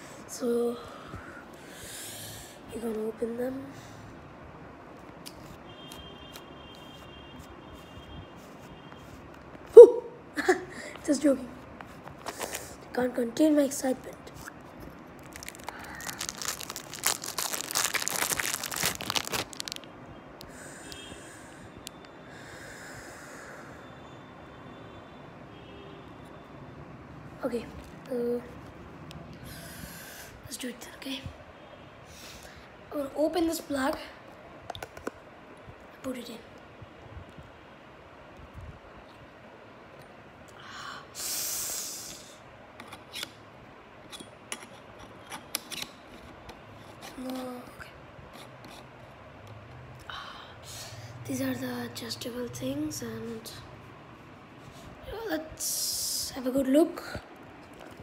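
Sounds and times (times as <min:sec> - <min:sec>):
plastic wrapping crinkling: 0:14.3 - 0:19.9
microscope eyepiece handling noise: 0:42.8 - 0:43.4, 0:44.1 - 0:46.4.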